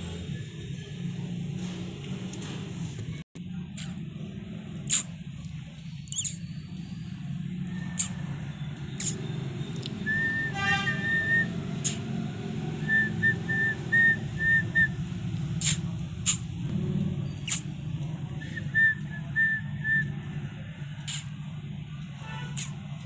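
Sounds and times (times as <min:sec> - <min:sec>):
sharp clicks: 0:04.9 - 0:06.4, 0:09.0 - 0:10.0, 0:11.8 - 0:12.1, 0:21.0 - 0:21.3.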